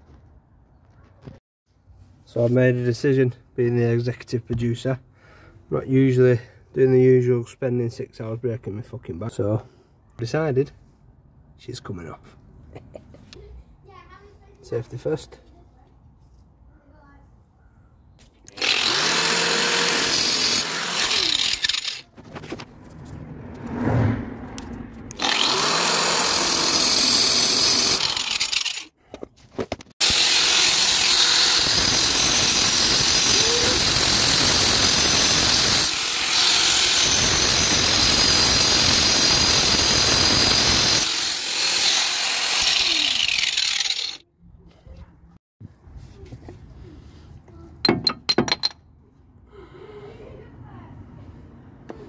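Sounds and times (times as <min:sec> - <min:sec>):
angle grinder cutting steel: 0:18.5 - 0:22.1, 0:25.1 - 0:28.9, 0:30.0 - 0:44.2.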